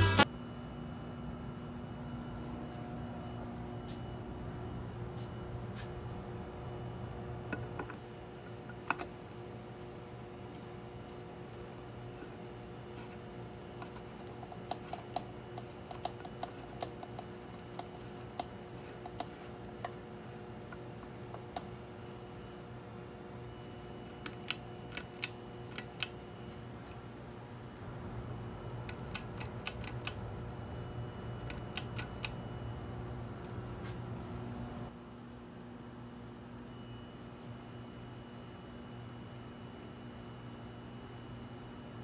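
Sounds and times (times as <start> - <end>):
steady low hum: 0.0 - 42.0
light bulb clicking and scraping: 12.1 - 21.6.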